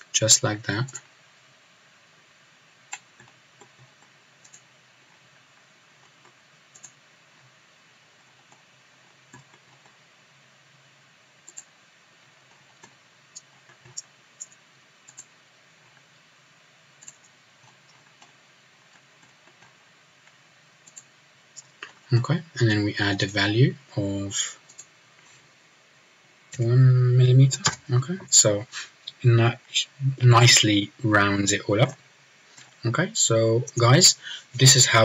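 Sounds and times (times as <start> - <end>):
faint steady hum: 0.0 - 35.0
computer mouse clicking: 2.9 - 7.6, 8.2 - 10.0, 11.4 - 16.1, 17.0 - 22.0, 24.6 - 24.9.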